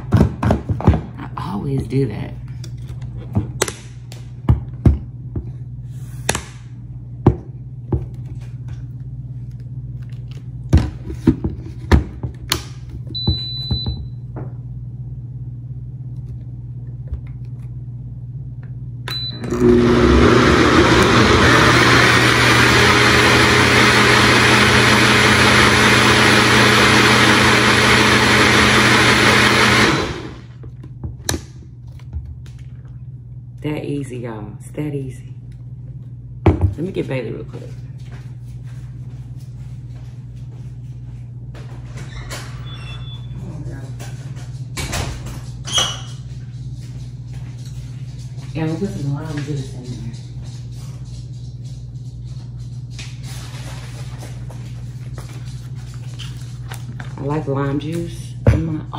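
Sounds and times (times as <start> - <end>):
countertop blender running: 19.4 - 30.6.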